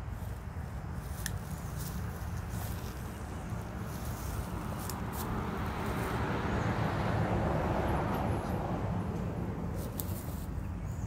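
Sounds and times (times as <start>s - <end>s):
steady low rumble: 0.0s - 11.0s
vehicle passing by: 0.0s - 11.0s.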